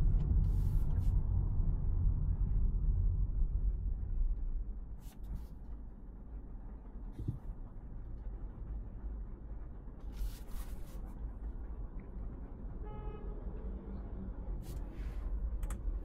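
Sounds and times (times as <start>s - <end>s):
car horn toot: 12.8s - 13.4s.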